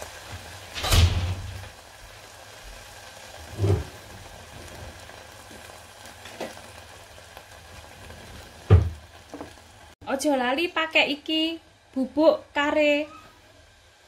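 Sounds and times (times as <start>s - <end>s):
thick sauce simmering: 1.5s - 10.0s.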